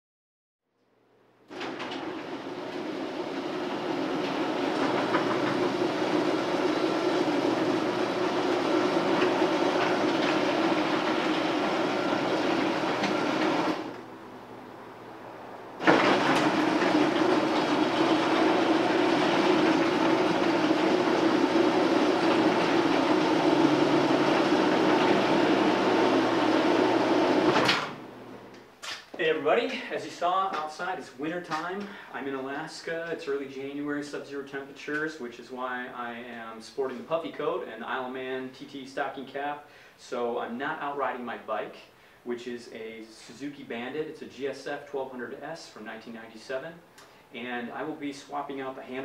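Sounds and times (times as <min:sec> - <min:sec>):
electric garage door opener running: 0:01.5 - 0:14.2, 0:15.8 - 0:28.4.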